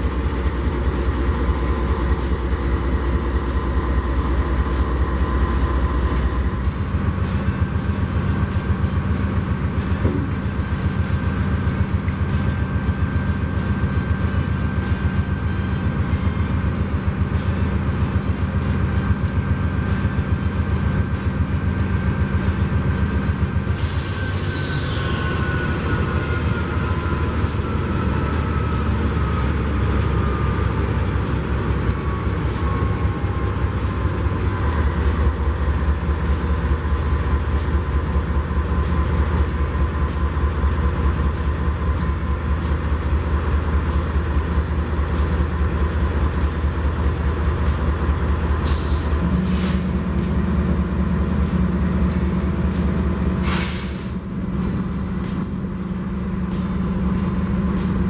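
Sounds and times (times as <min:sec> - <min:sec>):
locomotive diesel engine drone: 0:00.0 - 0:58.0
air hisses: 0:53.3 - 0:54.2.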